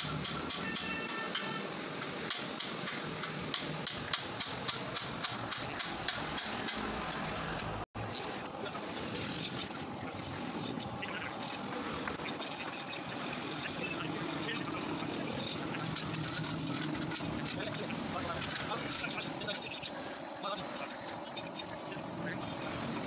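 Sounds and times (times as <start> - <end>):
street traffic noise: 0.0 - 23.0.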